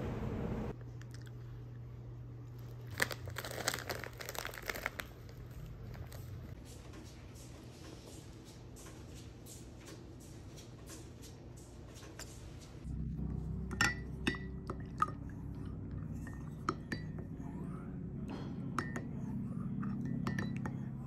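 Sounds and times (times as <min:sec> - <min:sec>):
low steady hum: 0:00.0 - 0:21.0
spoon clinking against mug: 0:13.7 - 0:15.2, 0:19.8 - 0:20.9.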